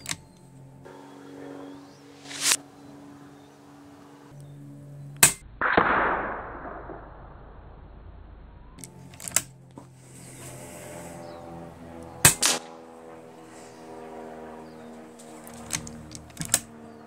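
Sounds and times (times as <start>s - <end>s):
rushing air noise: 0.9s - 2.8s
air rifle shot crack: 5.2s - 7.7s, 12.2s - 13.0s.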